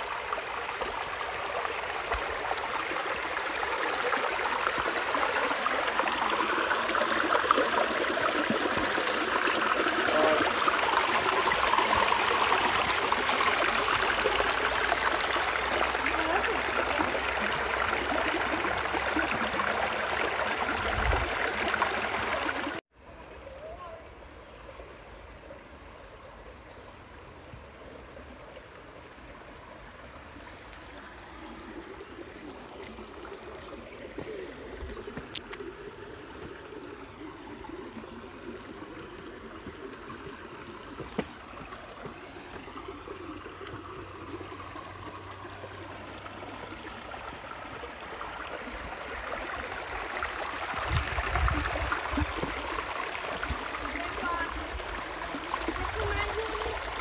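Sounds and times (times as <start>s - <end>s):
running water rushing: 0.0s - 57.0s.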